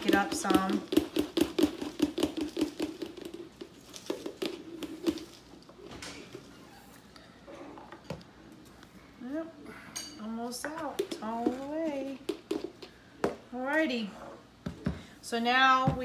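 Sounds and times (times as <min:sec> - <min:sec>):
dry herb rattling in a canister: 0:00.0 - 0:05.4.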